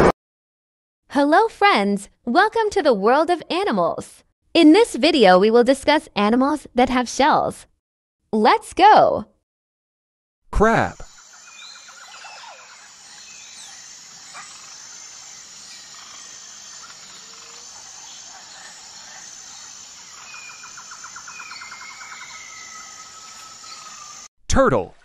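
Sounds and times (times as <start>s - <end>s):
birds chirping: 11.0s - 24.3s
insects calling: 11.0s - 24.3s.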